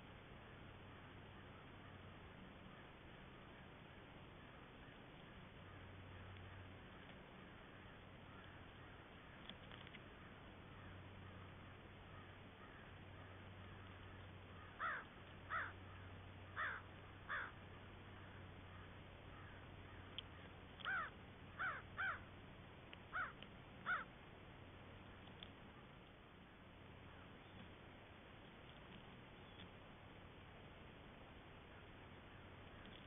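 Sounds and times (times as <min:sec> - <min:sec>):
faint low hum: 0:00.0 - 0:33.0
crows cawing: 0:07.4 - 0:09.4, 0:10.2 - 0:17.6, 0:18.2 - 0:22.3, 0:23.1 - 0:24.1.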